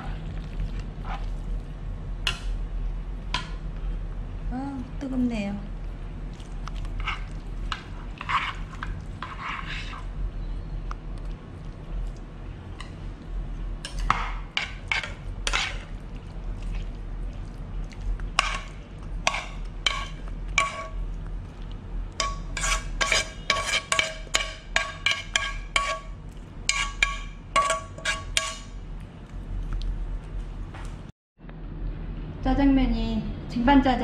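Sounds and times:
metal spoon scraping a wok: 0:08.2 - 0:10.1, 0:13.9 - 0:15.9, 0:18.4 - 0:21.0, 0:22.2 - 0:26.1, 0:26.7 - 0:28.7.

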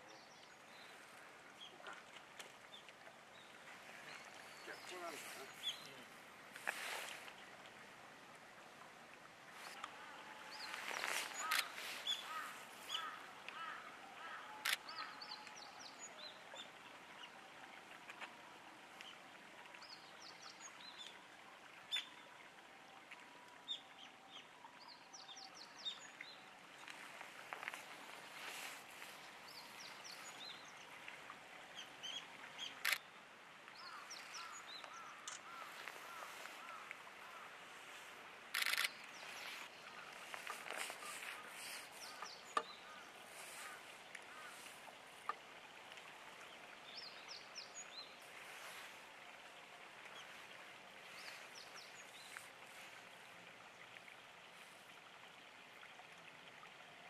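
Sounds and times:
birds chirping: 0:00.0 - 0:06.2, 0:10.4 - 0:16.3, 0:33.7 - 0:37.5, 0:38.5 - 0:45.4.

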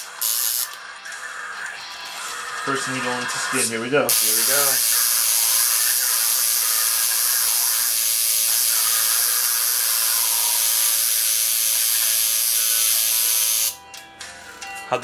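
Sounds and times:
electric tattoo machine buzzing: 0:00.0 - 0:00.9, 0:04.1 - 0:13.8.

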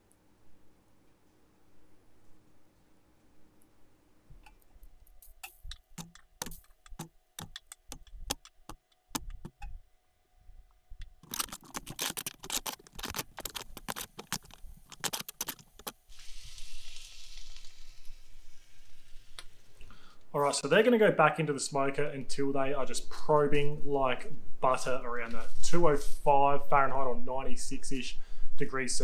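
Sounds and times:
aluminium foil crinkling: 0:11.2 - 0:19.8.

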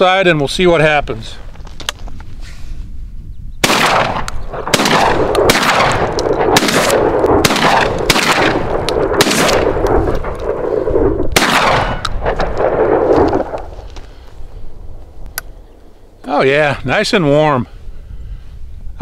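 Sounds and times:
shotgun firing: 0:03.6 - 0:13.7.

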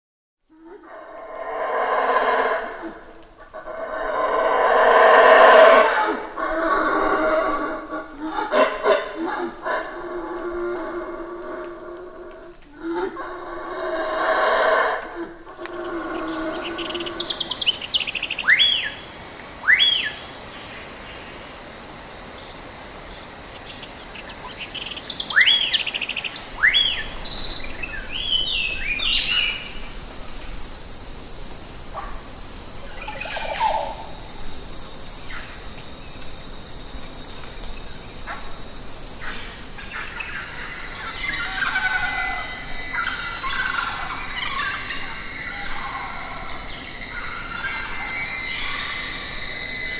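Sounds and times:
high-pitched insect drone: 0:00.7 - 0:49.9
birds calling: 0:23.5 - 0:30.6.

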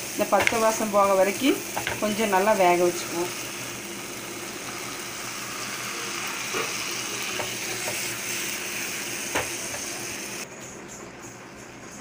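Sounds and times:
masala sizzling in a pan: 0:00.0 - 0:10.4.

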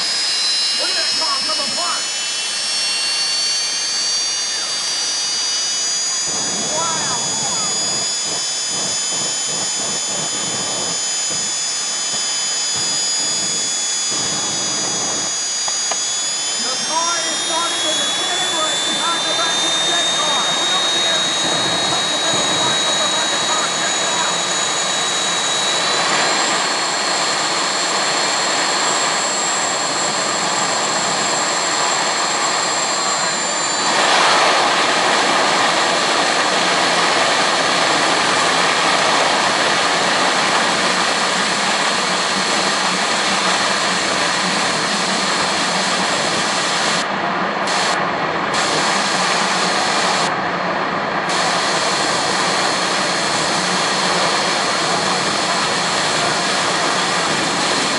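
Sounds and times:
high whine: 0:00.0 - 0:57.9
jet engine roaring: 0:00.0 - 0:57.9.

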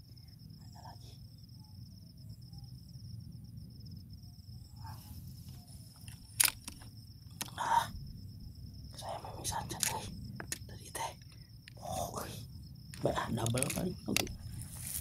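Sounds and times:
high-pitched insect trill: 0:00.0 - 0:15.0
wind rumble: 0:02.8 - 0:15.0
rustle: 0:04.8 - 0:06.8, 0:14.4 - 0:15.0
sharp click: 0:06.0 - 0:07.6, 0:09.7 - 0:10.7
handling noise: 0:12.9 - 0:15.0.

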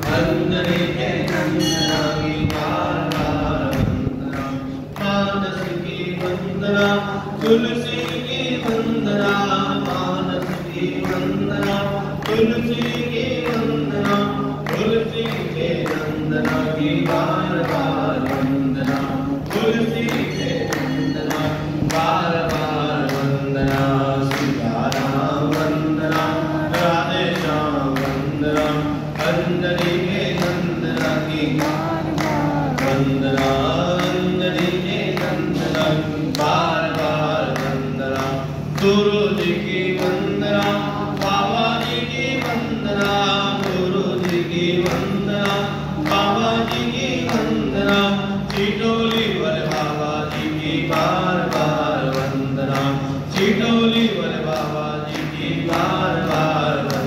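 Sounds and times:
group singing devotional song: 0:00.0 - 0:57.0
man singing into microphone: 0:00.0 - 0:57.0
steady beat: 0:21.4 - 0:48.1.

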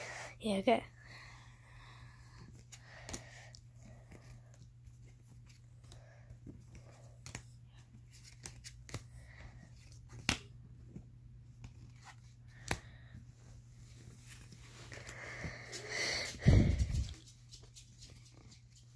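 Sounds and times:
cards slapping onto piles: 0:08.1 - 0:09.1, 0:09.8 - 0:10.6, 0:11.6 - 0:12.9.

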